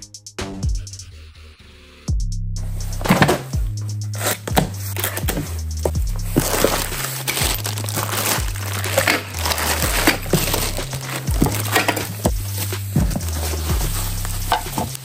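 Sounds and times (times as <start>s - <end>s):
background music with beat: 0.0s - 15.0s
bubble wrap and cardboard crinkling: 4.2s - 15.0s.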